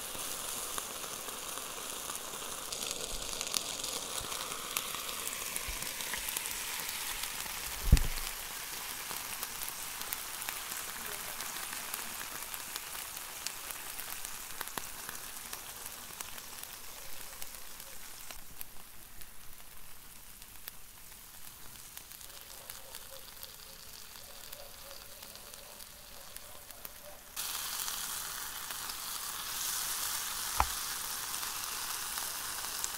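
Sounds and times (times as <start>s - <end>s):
batter sizzling in waffle maker: 0.0s - 32.9s
sharp thump: 7.8s - 8.2s, 30.6s - 30.8s.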